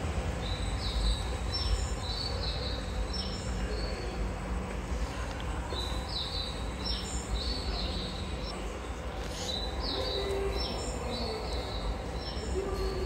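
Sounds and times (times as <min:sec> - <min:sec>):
steady low rumble: 0:00.0 - 0:09.9.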